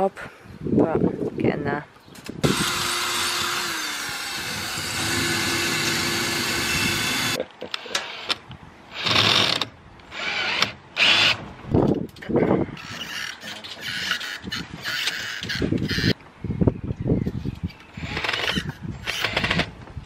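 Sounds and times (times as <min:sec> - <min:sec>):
cordless drill whining: 0:02.4 - 0:07.4, 0:18.0 - 0:19.7.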